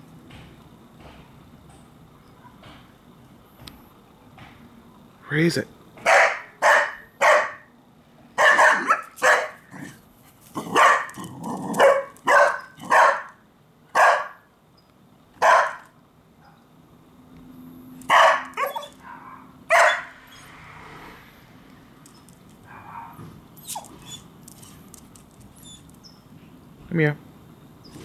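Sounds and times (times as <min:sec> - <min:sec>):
dog barking: 0:06.0 - 0:07.7, 0:08.4 - 0:10.0, 0:10.6 - 0:11.2, 0:11.8 - 0:14.5, 0:15.4 - 0:16.6, 0:18.1 - 0:20.2, 0:22.7 - 0:23.3.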